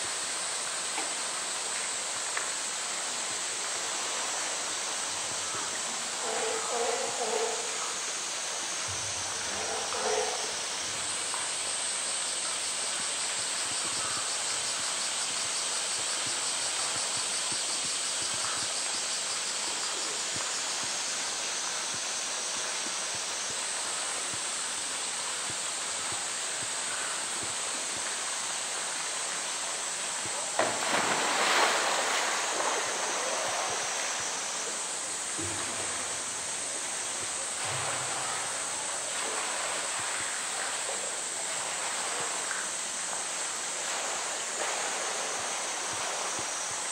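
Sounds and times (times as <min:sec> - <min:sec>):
loud splash: 0:30.5 - 0:34.3
water pouring into pool: 0:30.6 - 0:34.3.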